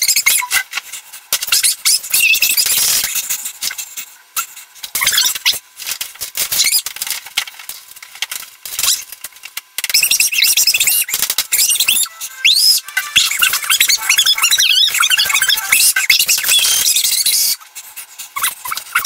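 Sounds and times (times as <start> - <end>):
sped-up high-pitched shouting: 10.0 - 17.8.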